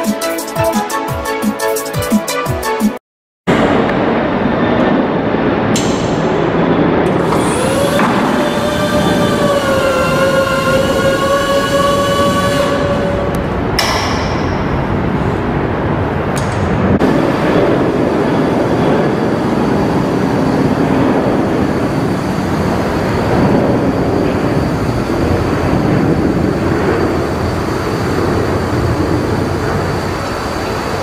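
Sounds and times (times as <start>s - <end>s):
scissor lift lowering: 7.0s - 14.6s.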